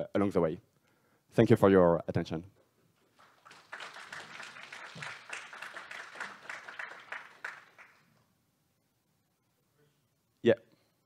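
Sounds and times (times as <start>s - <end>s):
audience applauding: 3.1s - 8.1s.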